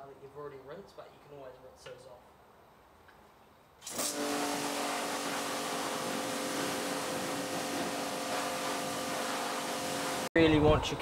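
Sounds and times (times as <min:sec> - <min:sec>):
pressure washer motor hum: 0:03.8 - 0:10.3
water jet hissing: 0:03.8 - 0:10.3.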